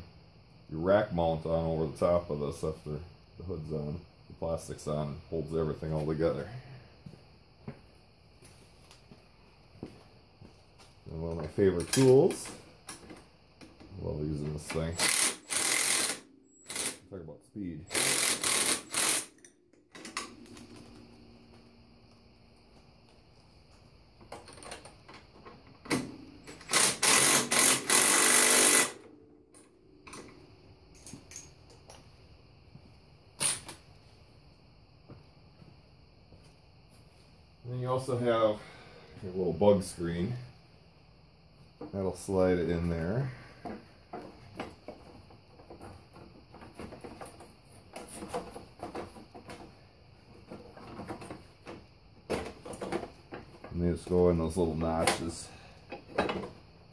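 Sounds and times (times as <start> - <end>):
power tool running in bursts: 15.0 - 17.0, 17.9 - 19.3, 26.6 - 29.0
light metal clicks and clinks: 30.9 - 32.0.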